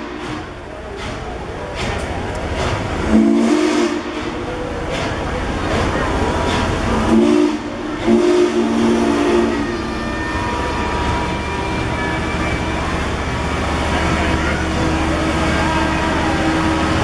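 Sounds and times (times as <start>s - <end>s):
train wheels rumbling on rails: 0.0s - 17.0s
train chime whistle: 7.1s - 13.2s.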